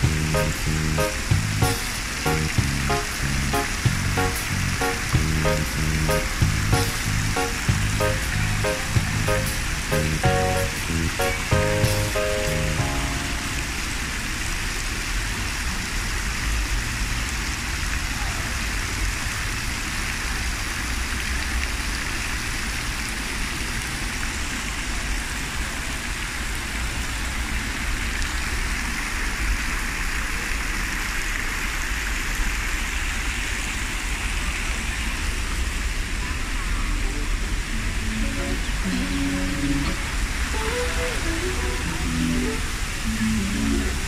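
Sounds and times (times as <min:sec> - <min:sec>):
fountain jets splashing into basin: 0:00.0 - 0:36.2, 0:36.9 - 0:44.0
low rumble: 0:02.5 - 0:09.9.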